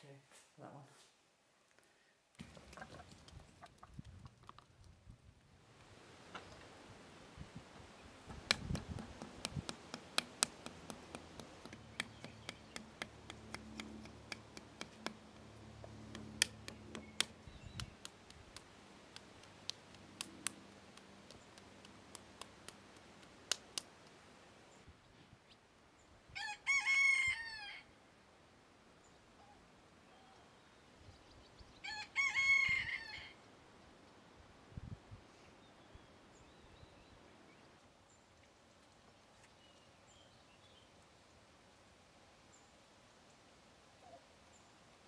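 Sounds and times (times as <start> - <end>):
sharp clicks: 8.4 - 15.4, 16.1 - 24.2
rooster crowing: 26.4 - 27.9, 31.8 - 33.4.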